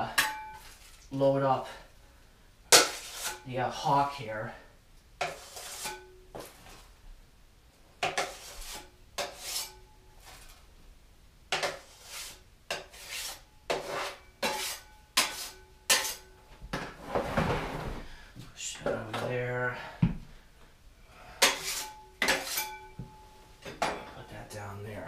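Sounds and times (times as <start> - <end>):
metal blade scraping compound: 2.7 - 3.5, 5.2 - 6.2, 8.0 - 10.6, 11.5 - 16.3, 21.4 - 23.0
metallic ring: 21.8 - 23.4.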